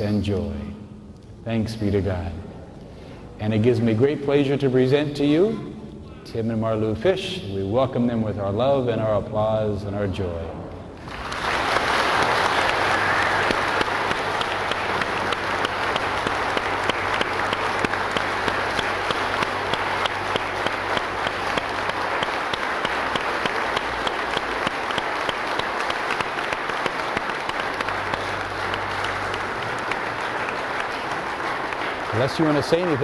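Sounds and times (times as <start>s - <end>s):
crowd applauding: 11.0s - 33.0s.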